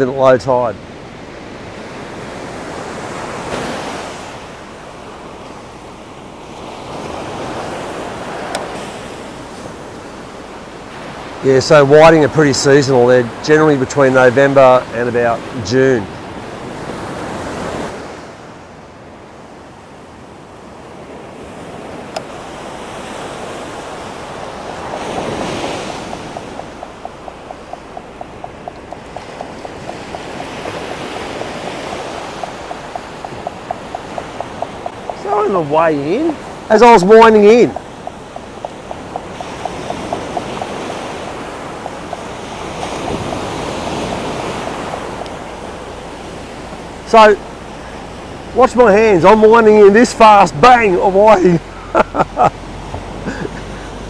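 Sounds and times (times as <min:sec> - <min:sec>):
surf breaking on a beach: 0:00.0 - 0:54.0
wind on microphone: 0:21.7 - 0:48.6
fishing reel ticking: 0:26.2 - 0:35.2.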